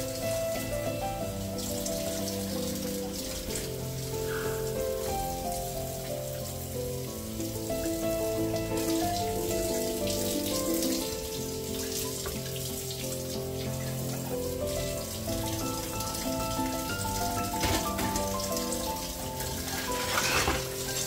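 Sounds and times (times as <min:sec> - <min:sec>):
soft background music: 0:00.0 - 0:21.0
tap water running into sink: 0:00.0 - 0:21.0.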